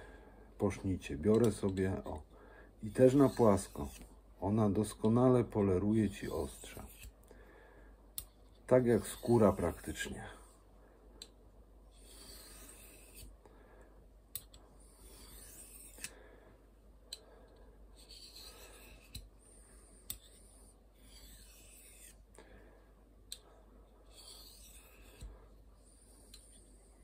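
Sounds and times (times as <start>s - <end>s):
blade scraping on hone: 2.8s - 7.2s, 8.2s - 10.5s, 11.9s - 13.3s, 14.4s - 16.2s, 18.0s - 22.2s, 24.0s - 27.0s.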